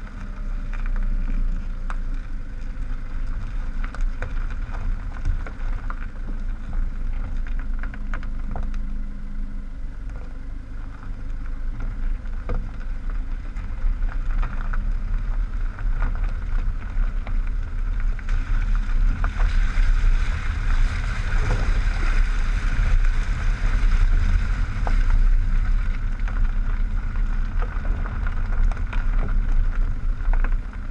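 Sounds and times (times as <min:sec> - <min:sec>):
gravel crunching: 0:00.0 - 0:30.9
tyre rumbling on gravel: 0:00.0 - 0:30.9.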